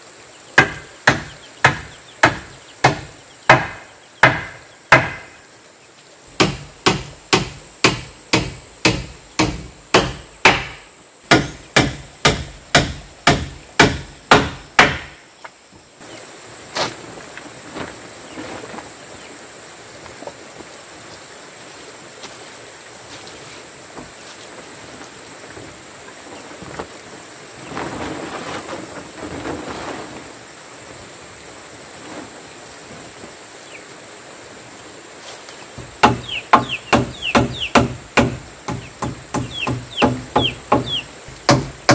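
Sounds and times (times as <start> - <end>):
hammer striking nails into wood: 0.6 - 5.4, 6.4 - 15.2, 35.8 - 41.9
rustling: 16.6 - 19.3, 26.2 - 30.6, 31.9 - 33.3.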